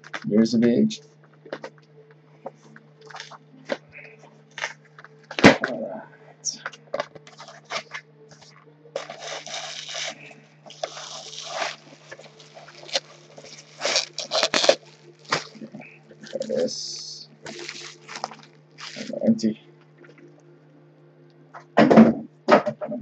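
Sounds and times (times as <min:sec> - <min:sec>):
packaging and bubble wrap crinkling: 0:00.0 - 0:00.3, 0:02.5 - 0:05.8, 0:06.6 - 0:19.5
steady low hum: 0:00.0 - 0:23.0
cardboard box being opened: 0:09.0 - 0:15.7, 0:17.5 - 0:19.1.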